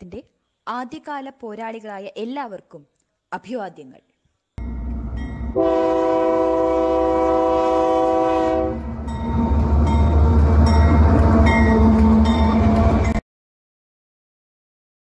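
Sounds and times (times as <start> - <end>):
high-speed train rushing past: 4.6 - 13.2
train horn blast: 5.5 - 9.0, 11.2 - 13.2.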